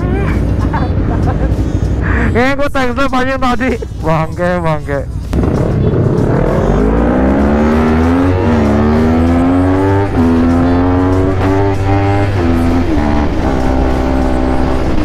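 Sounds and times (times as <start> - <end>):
motorcycle engine accelerating: 5.3 - 15.0.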